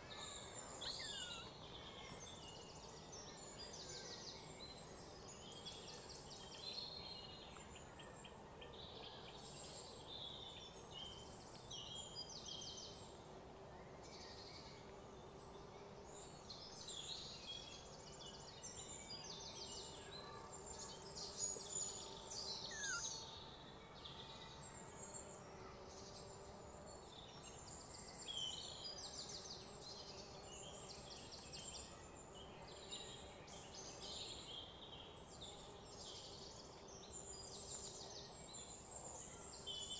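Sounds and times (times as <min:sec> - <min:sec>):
birds chirping: 0:00.2 - 0:01.6, 0:22.7 - 0:23.2
insects calling: 0:00.2 - 0:02.2, 0:22.7 - 0:23.2.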